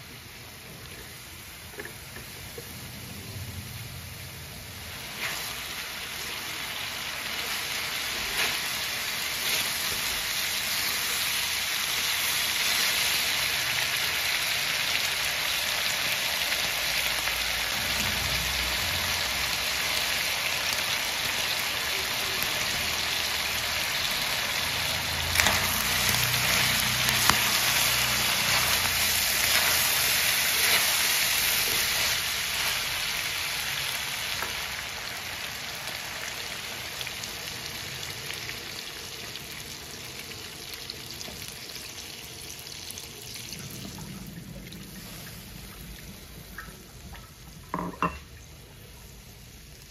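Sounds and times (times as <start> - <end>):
pork sizzling in a pan: 0.0 - 49.9.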